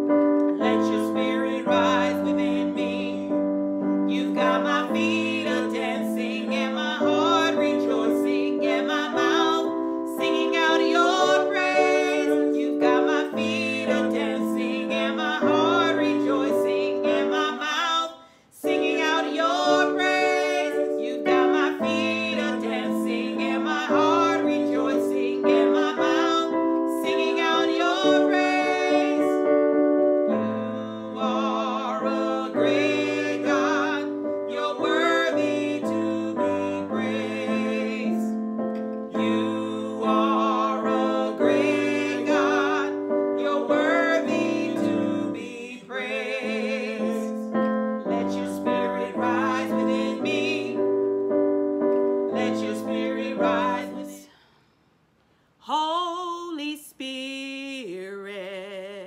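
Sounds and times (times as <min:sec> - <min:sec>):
wordless vocal: 0:39.2 - 0:47.5.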